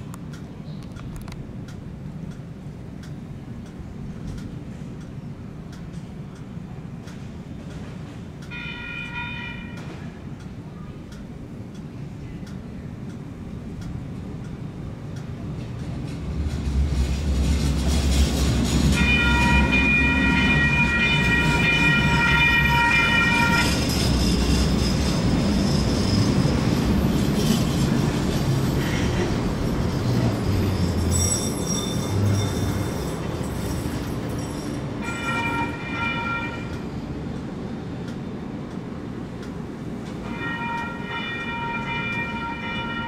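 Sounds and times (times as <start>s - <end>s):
train cars rumbling: 0.0s - 43.0s
train horn: 8.5s - 10.1s, 18.9s - 24.3s, 35.0s - 36.8s, 40.2s - 43.0s
high wheel squeal: 18.0s - 36.5s.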